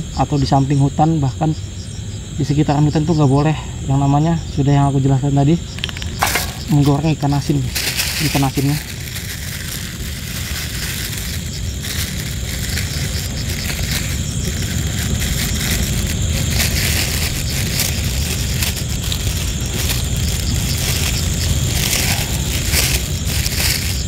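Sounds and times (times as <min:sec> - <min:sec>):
plastic bag crinkling: 0:05.8 - 0:24.0.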